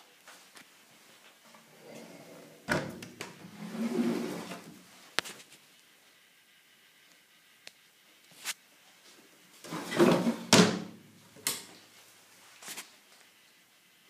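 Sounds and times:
drawer sliding and banging shut: 2.0s - 4.7s, 9.7s - 11.0s.

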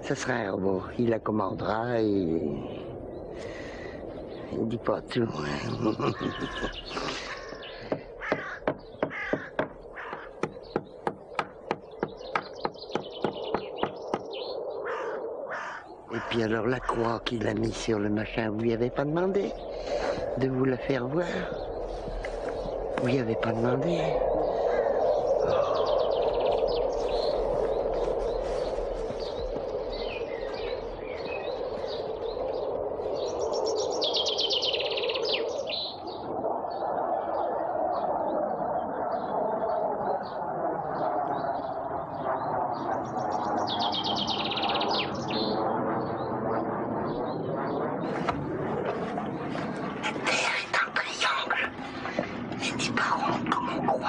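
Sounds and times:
songbirds chirping: 0.0s - 54.0s
birds cawing: 2.6s - 4.6s, 5.4s - 17.6s, 19.4s - 36.2s
fast bird trill: 6.2s - 16.3s
regular sharp knocking: 7.8s - 14.3s.

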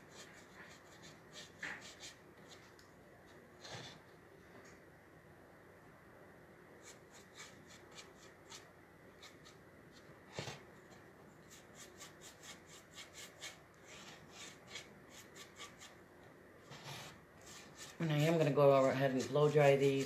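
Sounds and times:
paintbrush rubbing on wood: 0.0s - 2.7s, 6.8s - 16.0s, 16.6s - 20.0s.

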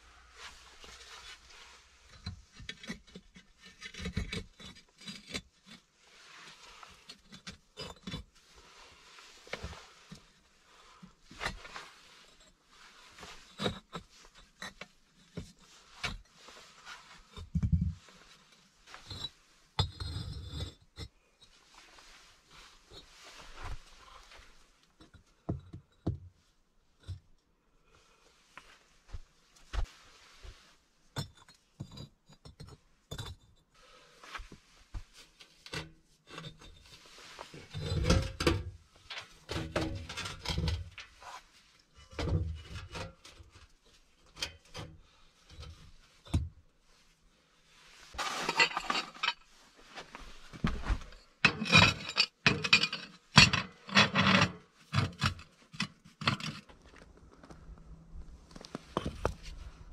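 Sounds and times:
bricks and plate scraping: 2.0s - 5.9s, 6.5s - 8.4s, 11.3s - 18.2s, 18.9s - 21.2s, 35.7s - 38.8s, 39.4s - 41.4s, 48.1s - 49.6s, 50.6s - 56.7s
bricks knocking and clinking: 2.1s - 5.5s, 13.5s - 16.2s, 19.0s - 21.1s, 31.2s - 33.6s.

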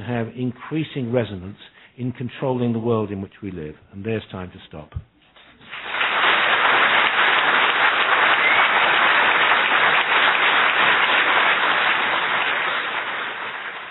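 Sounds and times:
audience applauding: 5.6s - 13.9s.

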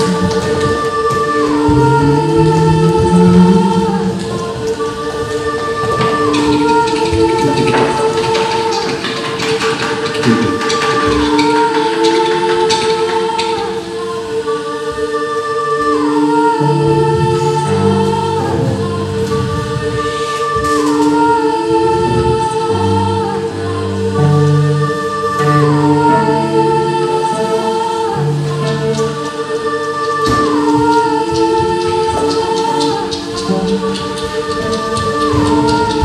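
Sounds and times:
low shifting notes: 0.0s - 9.4s
singing: 0.0s - 36.0s.

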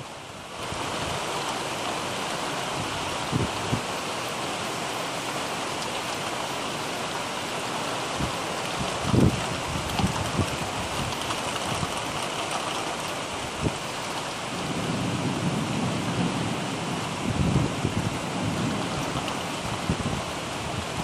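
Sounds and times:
heavy rain falling: 0.0s - 21.0s
low rumble of thunder: 14.5s - 21.0s.

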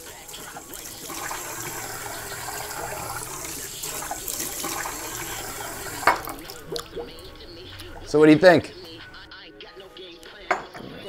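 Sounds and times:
running water into a sink: 0.0s - 8.2s.

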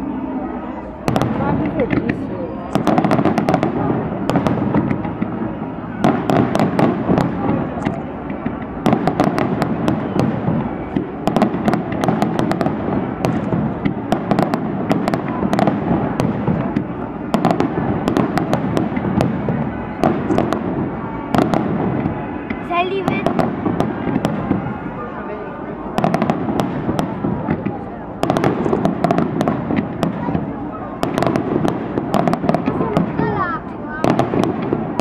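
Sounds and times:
fireworks crackling and popping: 1.1s - 25.1s, 25.7s - 35.0s.

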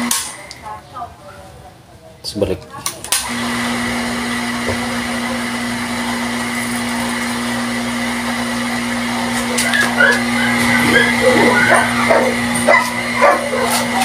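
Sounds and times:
electric water pump humming: 0.0s - 0.5s, 3.2s - 14.0s
dog yipping: 9.6s - 14.0s.

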